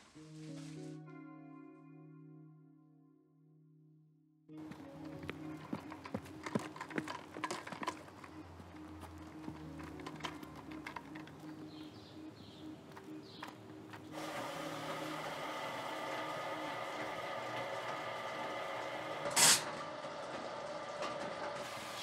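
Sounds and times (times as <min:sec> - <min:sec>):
machine mechanical hum: 0:04.6 - 0:22.0
loud hiss of gas: 0:19.3 - 0:19.8.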